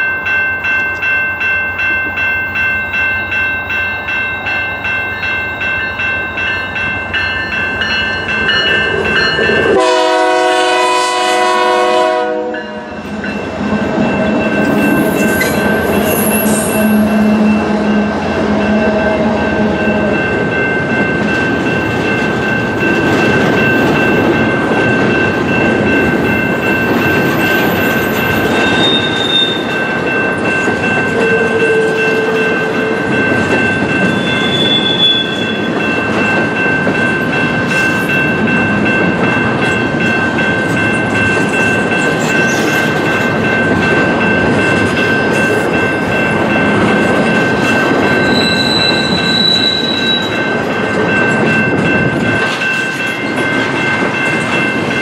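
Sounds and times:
train horn: 9.7s - 13.0s, 16.2s - 19.4s, 31.2s - 33.0s.

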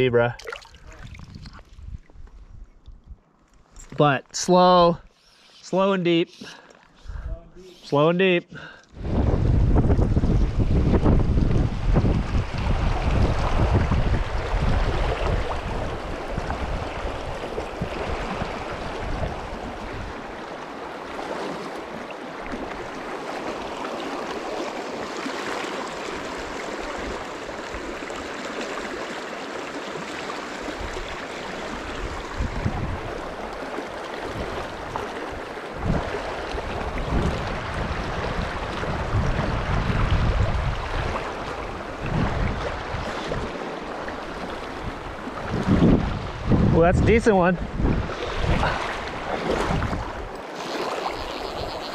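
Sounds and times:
wind buffeting microphone: 0.8s - 3.2s, 9.0s - 20.4s, 30.8s - 33.6s, 34.2s - 43.6s, 44.4s - 50.4s.

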